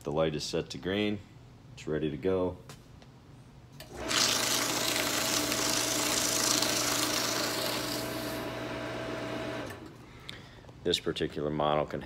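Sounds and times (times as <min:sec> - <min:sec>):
paper rasping in shredder: 0:03.9 - 0:09.8
paper shredder motor hum: 0:03.9 - 0:10.0.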